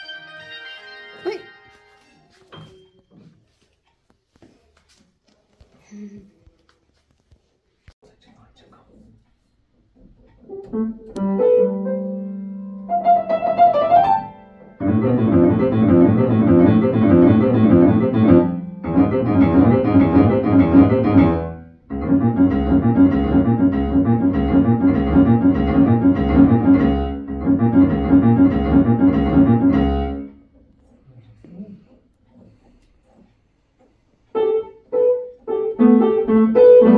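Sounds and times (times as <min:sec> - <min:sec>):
piano-like keyboard music: 0:10.6 - 0:30.4, 0:34.4 - 0:36.9.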